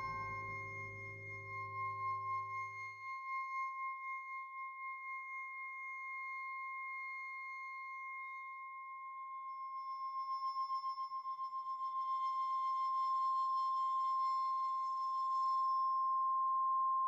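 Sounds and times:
low musical drone: 0.0s - 3.0s
high ringing tone: 0.0s - 17.0s.

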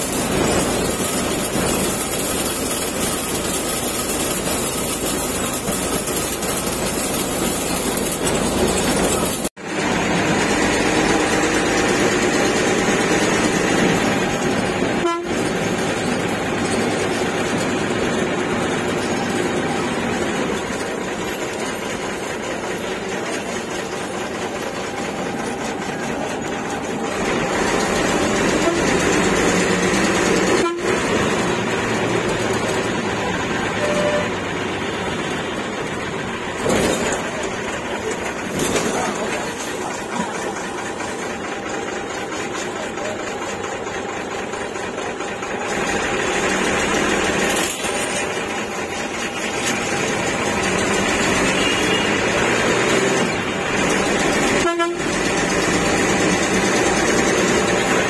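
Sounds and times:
bus engine and road noise: 0.0s - 58.0s
vehicle horns honking: 14.8s - 16.2s, 28.2s - 29.6s, 30.2s - 31.6s, 33.2s - 34.6s, 51.2s - 53.2s, 54.4s - 55.3s.

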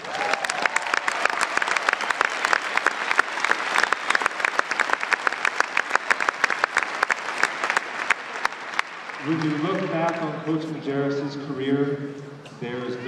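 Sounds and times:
crowd applauding: 0.0s - 10.4s
sharp nearby claps: 0.0s - 10.4s.

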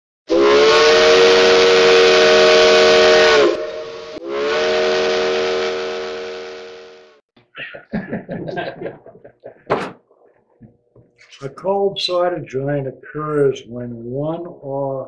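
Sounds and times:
steam locomotive whistle: 0.3s - 7.2s.

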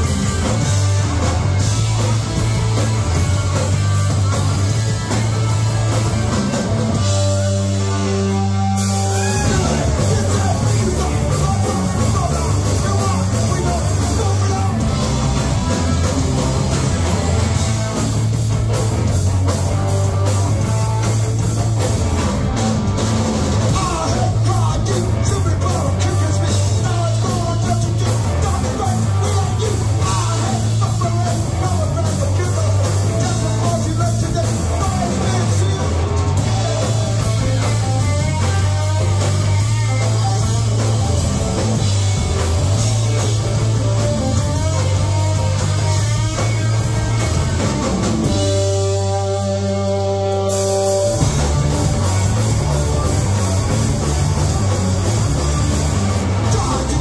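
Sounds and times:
bass guitar: 0.0s - 57.0s
drums: 0.0s - 57.0s
electric guitar: 0.0s - 57.0s
person singing: 9.0s - 15.2s, 23.7s - 37.4s, 56.4s - 57.0s.

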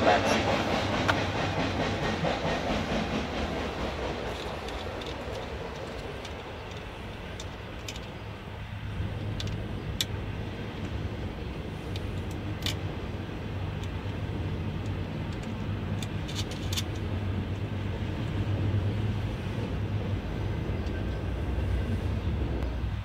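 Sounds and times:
steady low background rumble: 0.0s - 23.0s.

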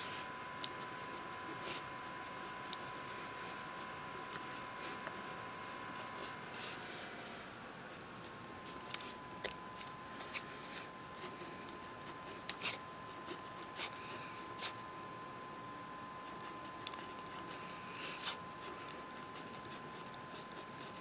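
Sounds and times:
faint high whine: 0.0s - 21.0s
pen scratching on paper: 0.7s - 6.8s, 9.8s - 14.8s, 16.2s - 21.0s.

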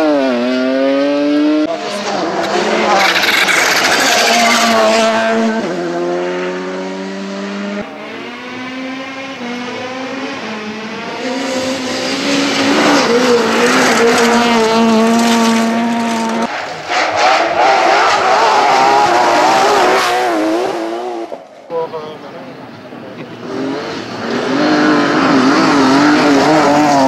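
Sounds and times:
rally car engine revving hard: 0.0s - 21.4s, 23.3s - 27.0s
rally car engine at high revs: 0.0s - 21.6s, 23.0s - 27.0s
car sliding on loose gravel: 2.2s - 5.0s, 12.3s - 17.2s.

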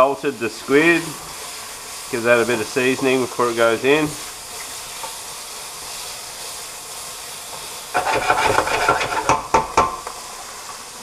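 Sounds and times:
food sizzling in oil: 0.0s - 11.0s
wooden spoon scraping a pan: 4.6s - 9.5s.

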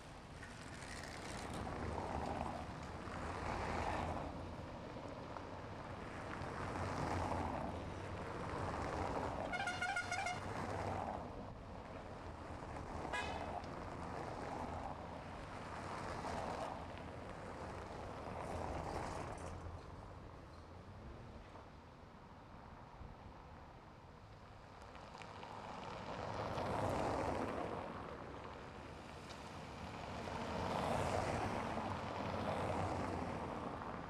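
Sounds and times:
passing vehicles: 0.0s - 34.0s
car horn: 9.4s - 10.5s, 13.1s - 13.5s.

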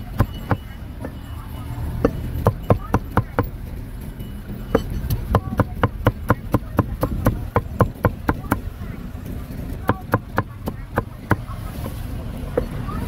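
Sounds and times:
knife chopping meat on metal pan: 4.8s - 8.6s.

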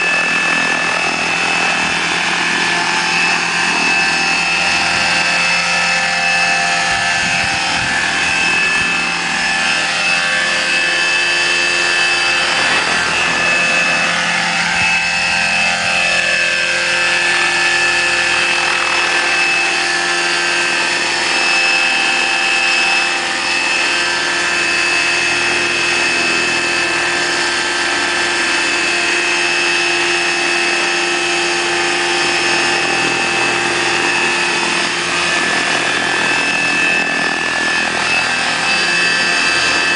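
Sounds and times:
electric motor whine: 0.0s - 39.9s
helicopter rotor noise: 0.0s - 39.9s.

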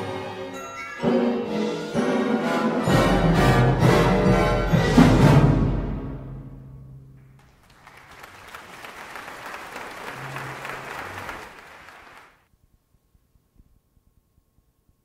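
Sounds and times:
audience applause: 7.4s - 12.4s.

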